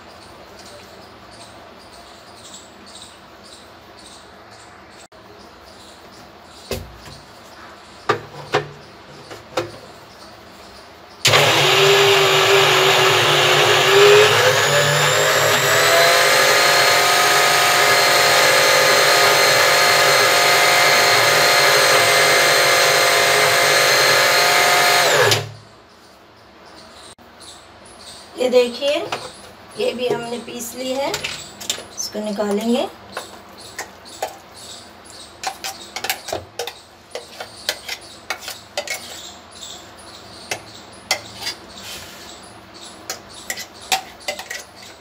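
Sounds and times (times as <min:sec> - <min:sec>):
electric mixer grinder whining: 0:11.2 - 0:25.6.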